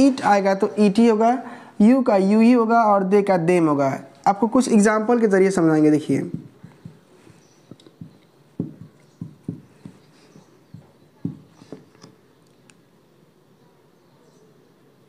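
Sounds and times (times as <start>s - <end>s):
marker tapping on whiteboard: 6.2s - 12.2s
faint marker scratches: 6.3s - 12.2s.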